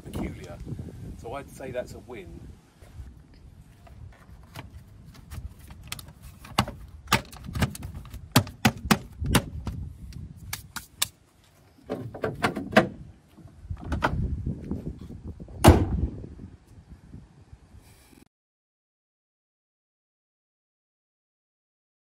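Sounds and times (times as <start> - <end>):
car bonnet scuffing and rattling: 11.4 - 14.8.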